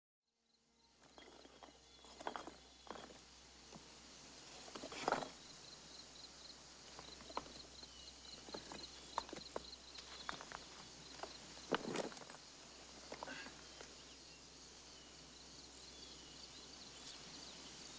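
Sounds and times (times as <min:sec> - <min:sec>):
stones knocking and scraping: 0:01.0 - 0:03.8, 0:04.6 - 0:05.4, 0:06.9 - 0:07.7, 0:08.4 - 0:12.4.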